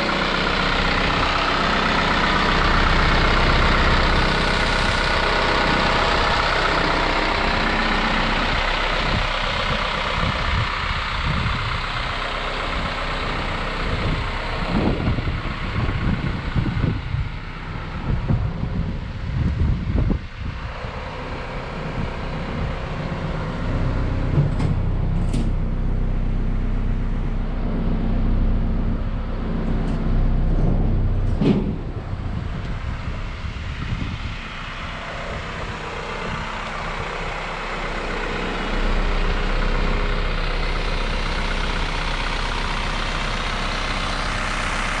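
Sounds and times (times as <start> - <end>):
truck engine idling: 0.0 - 45.0
loud clunk: 24.3 - 25.6, 29.6 - 32.2.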